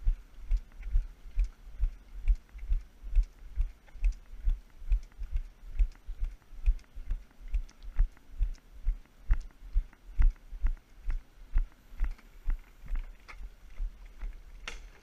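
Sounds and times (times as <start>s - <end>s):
walking pole tips clicking on pavement: 12.0s - 15.0s.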